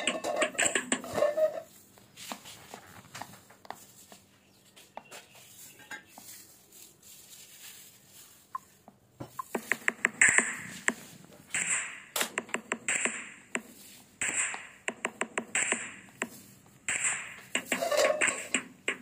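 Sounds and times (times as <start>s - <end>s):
kitchen utensils and bowls clinking: 0.0s - 1.7s.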